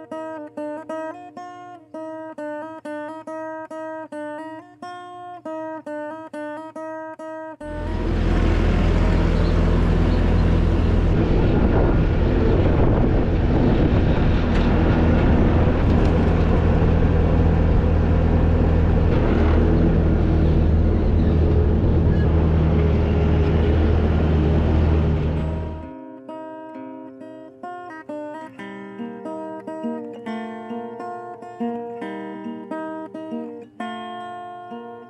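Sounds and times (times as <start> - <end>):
loader engine running: 7.7 - 25.9.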